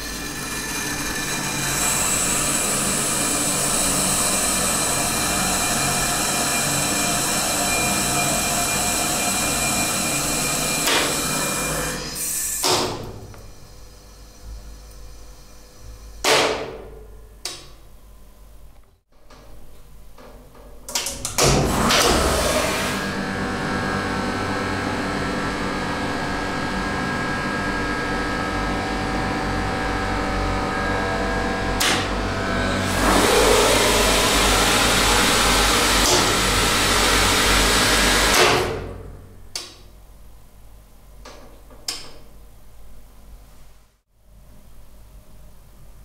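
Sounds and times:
hydraulic pump motor humming: 0.0s - 12.3s, 21.7s - 38.7s.

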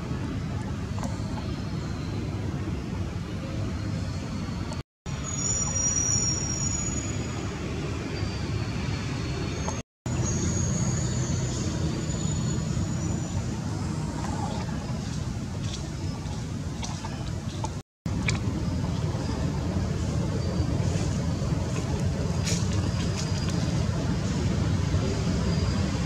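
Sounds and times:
thin high whistles: 4.0s - 7.4s
low outdoor rumble: 11.1s - 26.0s.

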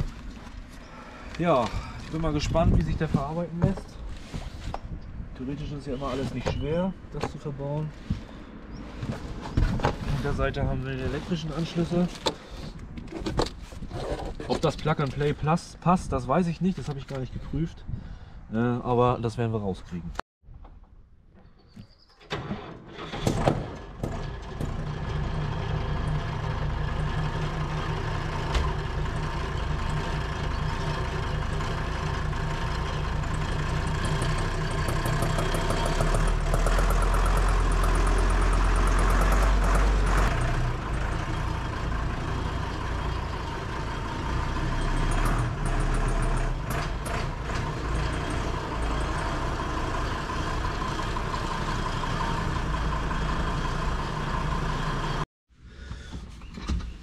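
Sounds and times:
tractor diesel engine running: 22.3s - 55.2s.

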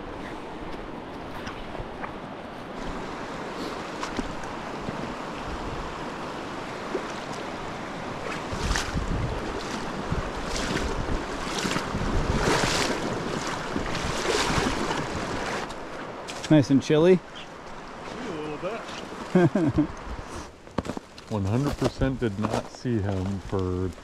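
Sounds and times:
wind buffeting microphone: 0.0s - 15.7s
river water rushing: 0.0s - 20.3s
splashing through water: 6.6s - 15.8s.

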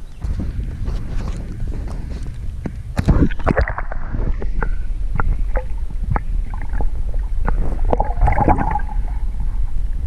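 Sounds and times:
muffled water gurgling: 0.0s - 10.0s
underwater low rumble: 0.0s - 10.0s
bubbly water swirl: 3.0s - 10.0s.

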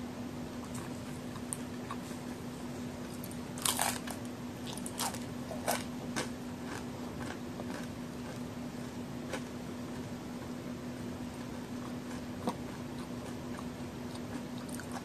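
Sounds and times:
soft chewing: 0.6s - 10.6s, 11.2s - 15.0s
cookie crunching: 3.0s - 10.6s, 11.2s - 15.0s.

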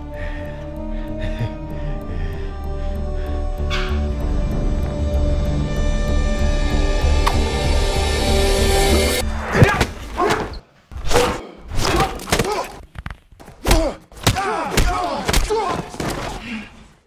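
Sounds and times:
punches and thuds: 9.5s - 10.5s, 13.5s - 16.4s
grunts and cries of effort: 13.6s - 17.0s.

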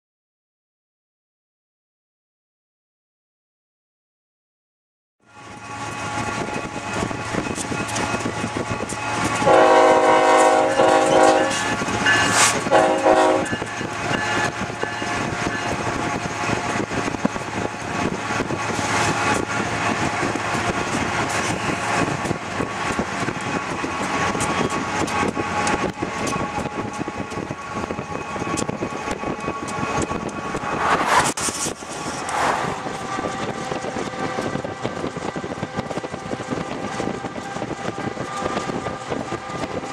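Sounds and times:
freight train rumbling: 5.3s - 39.9s
locomotive horn blast: 9.4s - 14.4s.

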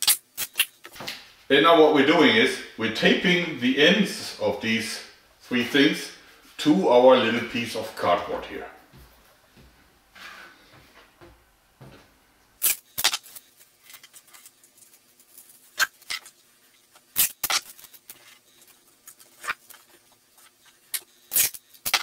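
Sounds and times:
duct tape tearing: 0.0s - 0.8s, 12.6s - 14.4s, 17.1s - 18.2s, 20.9s - 22.0s.

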